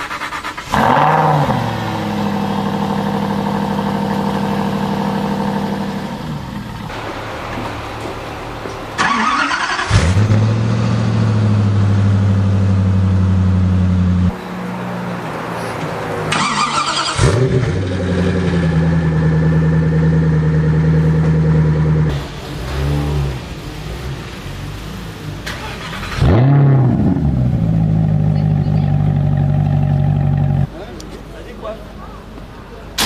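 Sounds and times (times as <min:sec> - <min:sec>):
engine cranking and firing up: 0:00.0 - 0:14.3, 0:16.2 - 0:23.6, 0:25.2 - 0:30.7
car engine starting: 0:00.0 - 0:30.8
car engine idling: 0:00.0 - 0:33.0.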